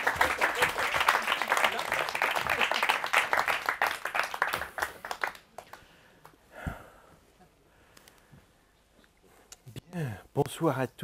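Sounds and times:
audience applause: 0:00.0 - 0:05.8.

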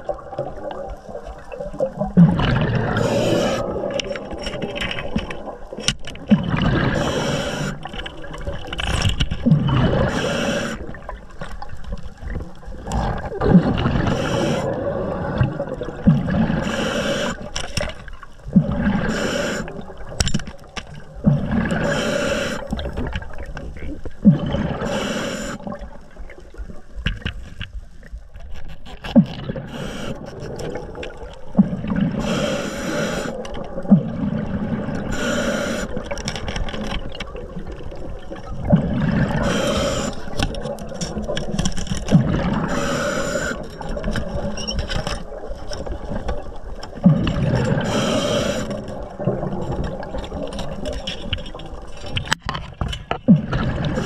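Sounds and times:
air bubbling: 0:00.0 - 0:08.5, 0:09.4 - 0:11.3, 0:12.4 - 0:17.5, 0:21.1 - 0:26.5, 0:29.2 - 0:36.1, 0:37.0 - 0:41.4
diver breathing underwater: 0:02.3 - 0:04.3, 0:06.5 - 0:08.0, 0:09.6 - 0:11.1, 0:12.9 - 0:17.6, 0:18.5 - 0:20.0, 0:21.2 - 0:23.0, 0:24.2 - 0:25.9, 0:29.5 - 0:30.9, 0:31.5 - 0:36.3, 0:38.7 - 0:40.7, 0:42.2 - 0:44.1, 0:47.0 - 0:49.7.

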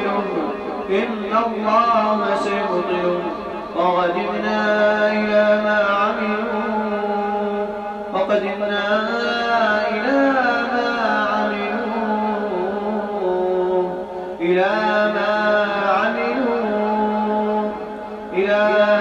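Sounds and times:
person chanting melodic recitation: 0:00.0 - 0:19.0.

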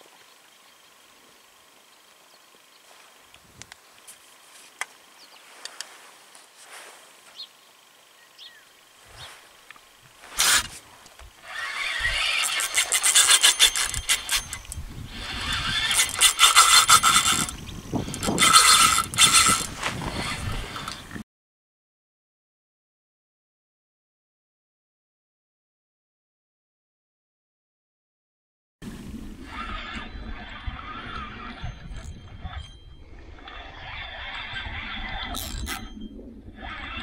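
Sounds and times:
fishing reel clicking and buzzing: 0:09.7 - 0:21.2, 0:29.4 - 0:37.0.

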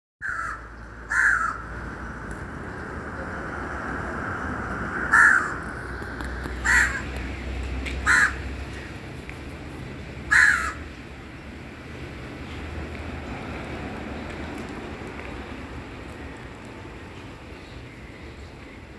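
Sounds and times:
crow cawing: 0:00.2 - 0:01.7, 0:05.1 - 0:05.6, 0:06.6 - 0:07.1, 0:08.0 - 0:08.5, 0:10.3 - 0:10.9.

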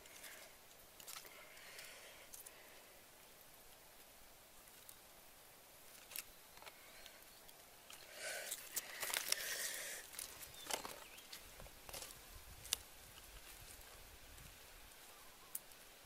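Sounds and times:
mushrooms rustling in basket: 0:04.6 - 0:16.0
footsteps on grass and leaves: 0:08.6 - 0:14.9.

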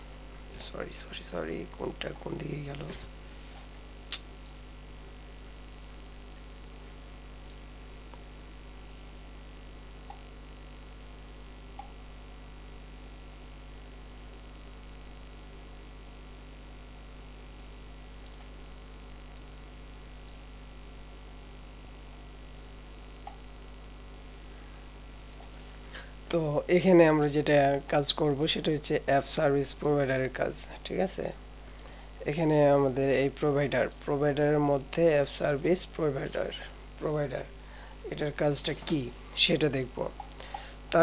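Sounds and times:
electrical mains hum: 0:00.0 - 0:41.0
sharp click: 0:04.1 - 0:04.3, 0:11.8 - 0:12.0
faint ticks: 0:07.4 - 0:08.3, 0:10.0 - 0:10.4, 0:11.7 - 0:12.0, 0:17.6 - 0:18.6, 0:23.2 - 0:23.5, 0:40.2 - 0:41.0.

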